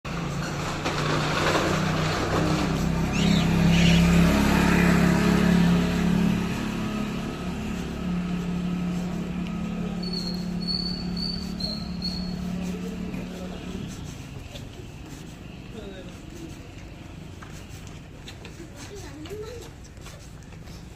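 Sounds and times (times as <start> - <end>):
motorcycle engine passing by: 0.1 - 15.3.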